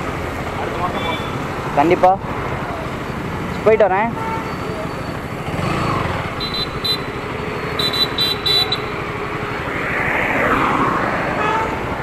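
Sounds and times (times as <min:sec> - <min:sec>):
wind and road noise: 0:00.0 - 0:12.0
motorcycle engine pulling away: 0:05.3 - 0:06.6.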